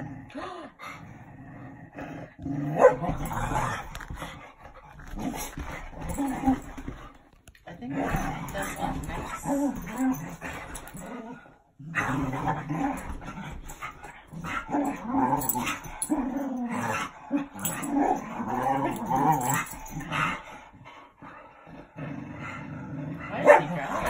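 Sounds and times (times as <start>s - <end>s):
dogs growling: 0.0s - 24.0s.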